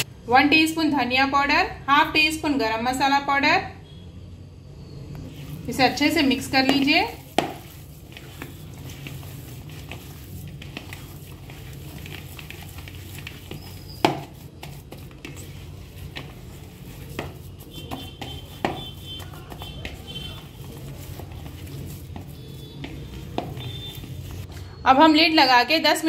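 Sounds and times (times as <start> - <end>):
hands kneading mixture squelching: 5.2 - 24.5.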